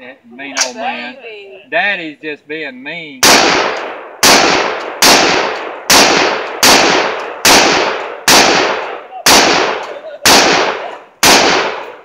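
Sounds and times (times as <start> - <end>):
rifle shots with echo: 3.2 - 12.0.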